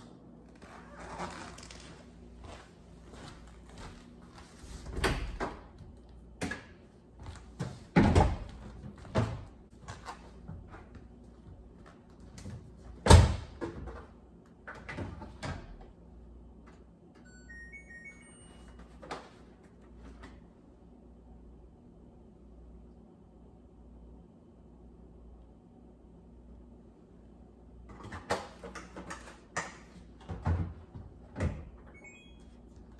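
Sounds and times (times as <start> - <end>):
knocks and thumps at washing machine: 7.6 - 9.6, 30.2 - 31.8
washing machine electronic beeps: 17.2 - 19.3, 31.8 - 32.9.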